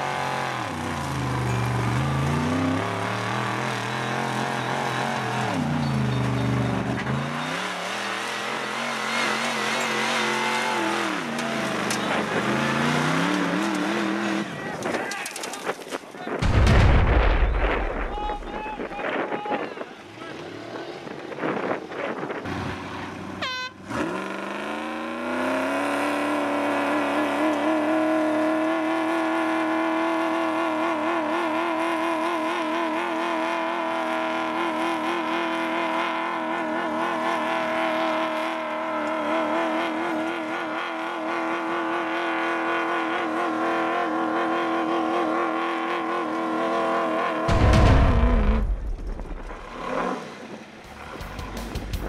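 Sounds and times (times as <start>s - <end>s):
buggy engine revving at full throttle: 0.0s - 14.9s, 21.4s - 52.0s
loud low rumble: 16.4s - 19.0s, 47.5s - 50.0s.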